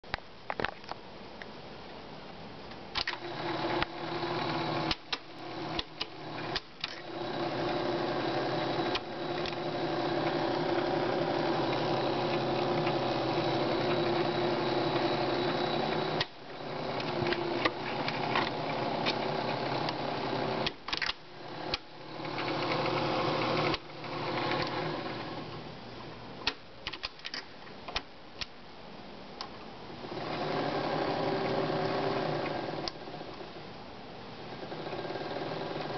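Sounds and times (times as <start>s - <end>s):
film projector whirring: 2.9s - 25.7s, 30.0s - 33.5s, 34.4s - 35.9s.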